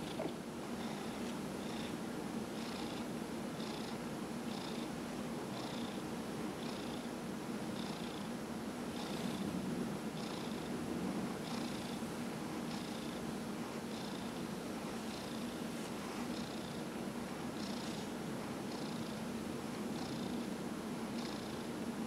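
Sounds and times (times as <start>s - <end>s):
cat purring: 0.0s - 2.0s, 2.6s - 4.9s, 5.5s - 6.0s, 6.6s - 7.1s, 7.8s - 8.3s, 8.9s - 9.4s, 10.2s - 10.8s, 11.4s - 12.0s, 12.7s - 13.2s, 13.9s - 14.4s, 16.3s - 16.8s, 17.6s - 19.2s, 20.0s - 20.4s, 21.2s - 21.7s.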